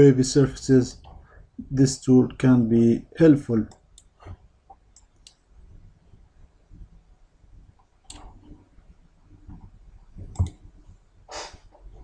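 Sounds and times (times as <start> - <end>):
computer mouse clicks: 7.8 - 8.4, 10.2 - 10.6.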